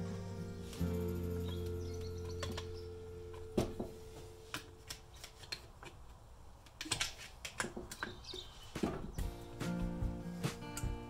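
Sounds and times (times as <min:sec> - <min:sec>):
steady low hum: 0:00.0 - 0:04.9.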